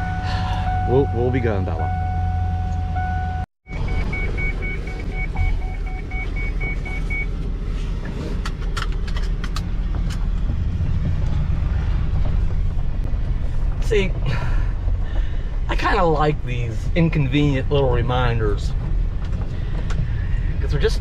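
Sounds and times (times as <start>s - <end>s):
dashboard warning chime: 0.0s - 7.3s
van engine humming: 0.0s - 21.0s.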